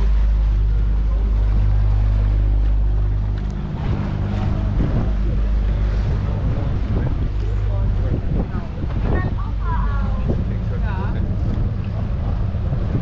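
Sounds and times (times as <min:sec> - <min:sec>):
boat motor running: 0:00.0 - 0:13.0
water churning along hull: 0:00.0 - 0:13.0.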